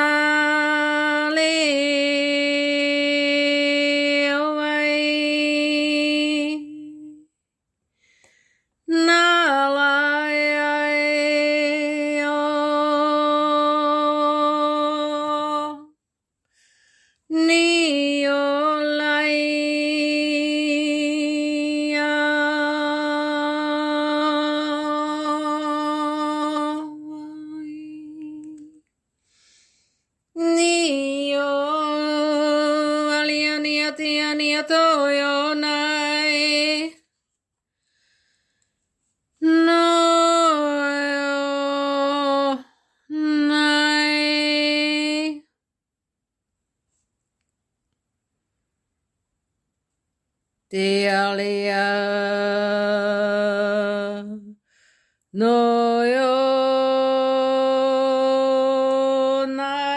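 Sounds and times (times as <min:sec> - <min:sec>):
woman singing a wordless chant: 0:00.0 - 0:07.4, 0:08.8 - 0:16.0, 0:17.2 - 0:28.9, 0:30.3 - 0:37.1, 0:39.4 - 0:45.6, 0:50.6 - 0:59.9.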